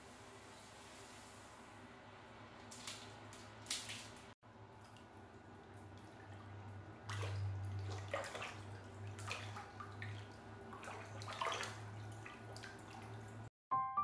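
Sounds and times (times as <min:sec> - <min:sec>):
water trickling and splashing: 0:02.7 - 0:13.5
steady low hum: 0:04.5 - 0:13.5.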